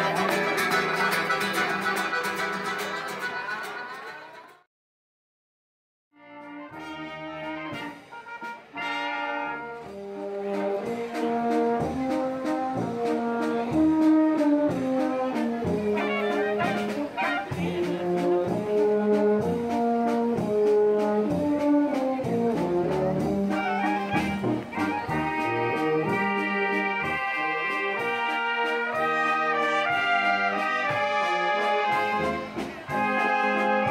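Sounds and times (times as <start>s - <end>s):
guitar and accordion music: 0.0s - 4.6s, 15.4s - 18.5s, 23.2s - 33.9s
brass wind band playing: 6.2s - 33.9s.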